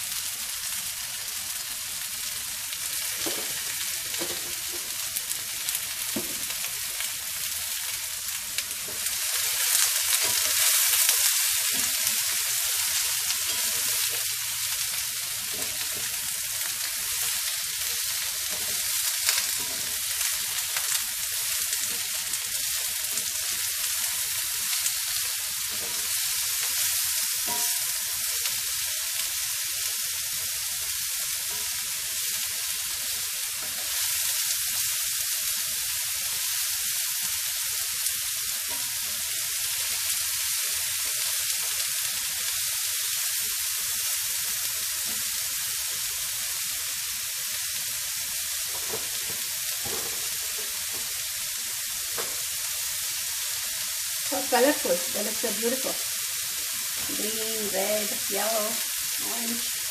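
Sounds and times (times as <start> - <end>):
vegetables sizzling in frying pan: 0.0 - 59.9
spatula scraping pan: 8.8 - 14.3, 15.4 - 20.6, 25.6 - 28.0.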